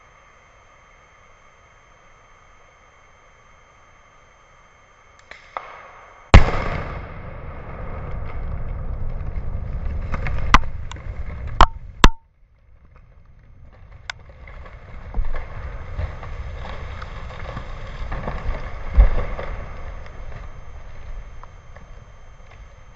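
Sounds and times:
dynamite explosion: 5.3s - 12.1s, 12.7s - 22.9s
debris crashing down: 6.4s - 22.9s
sharp knocks: 11.6s - 12.2s.

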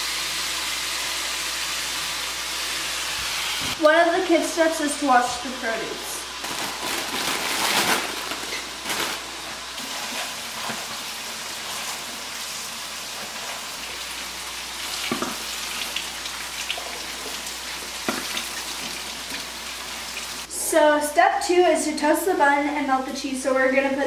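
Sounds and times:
plastic bag crinkling: 6.4s - 10.0s.

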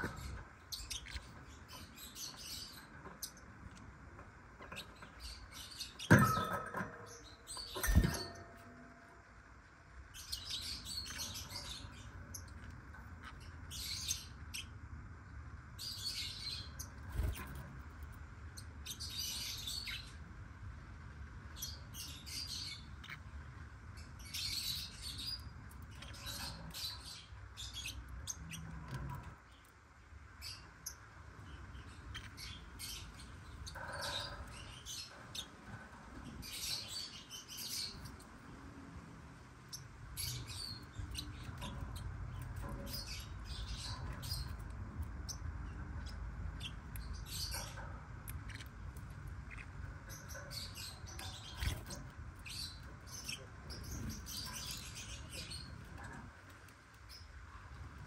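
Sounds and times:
lovebirds chirping: 0.0s - 8.9s, 10.1s - 14.9s, 30.3s - 38.7s, 39.6s - 58.0s.

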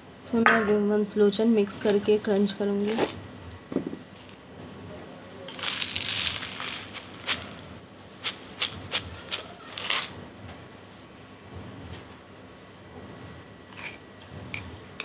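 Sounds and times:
powder pouring hiss: 5.5s - 10.2s.

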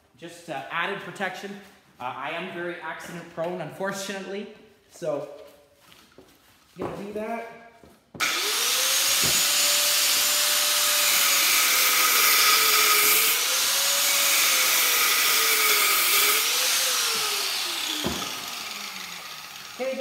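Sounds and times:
cut-off wheel cutting metal: 8.2s - 20.0s.

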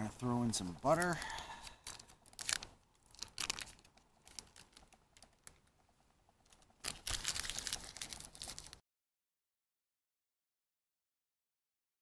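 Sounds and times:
butter wrapper crinkling and tearing: 0.8s - 8.8s.

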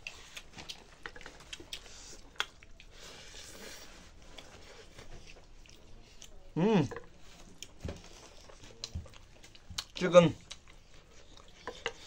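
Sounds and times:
fingers squishing food: 0.0s - 2.9s.

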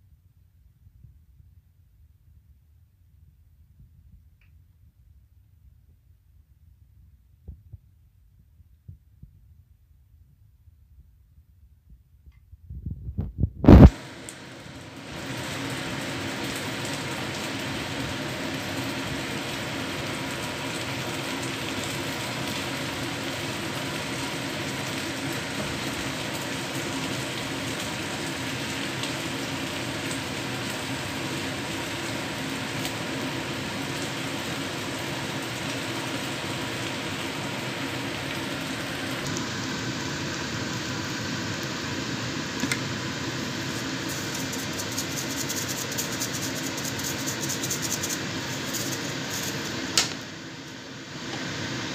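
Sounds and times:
food sizzling in a wok: 13.6s - 51.9s.

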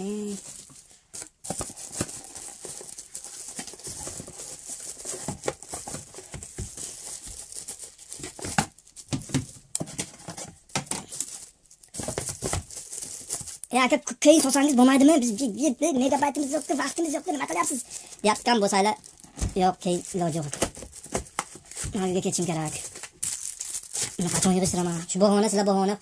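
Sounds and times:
plastic bag crinkling: 0.0s - 25.6s.

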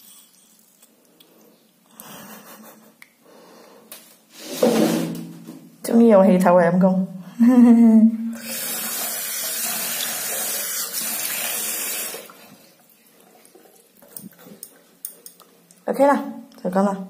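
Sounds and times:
tap water running into basin: 8.4s - 14.1s.

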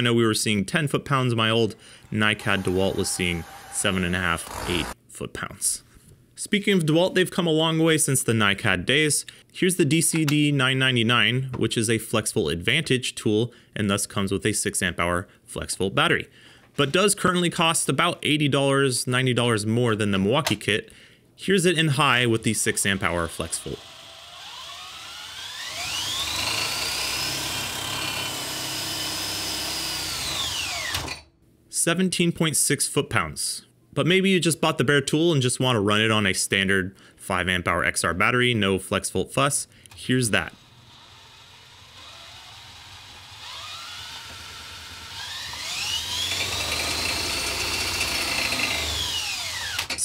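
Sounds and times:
cordless drill motor whine: 2.0s - 5.0s, 23.8s - 31.2s, 40.6s - 49.9s.

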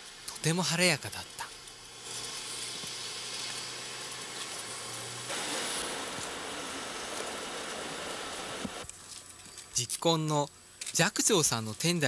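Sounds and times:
heavy rain falling: 1.9s - 8.8s.

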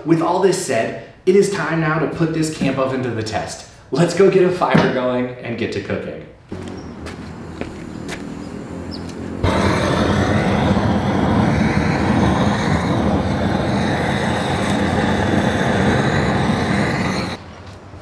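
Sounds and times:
gas torch hissing: 6.5s - 17.4s.

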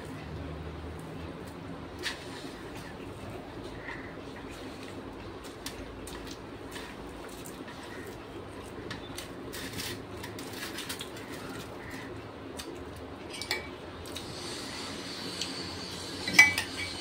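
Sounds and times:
fingers mixing rice on metal plate: 1.0s - 14.5s
metal spoon clinking in glass bowl: 16.3s - 17.0s.

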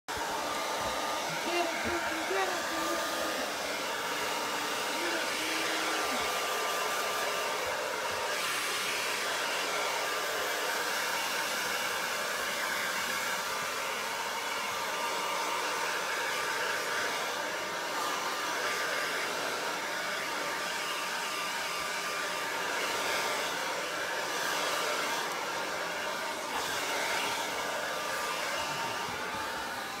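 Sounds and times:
hair dryer blowing: 0.0s - 30.0s.

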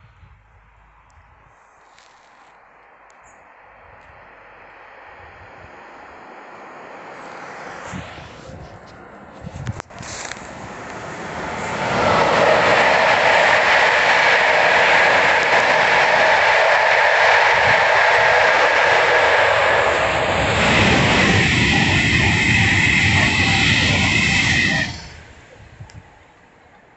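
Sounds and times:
high whine: 0.0s - 26.1s
train wheels rushing on rail: 6.6s - 26.1s.

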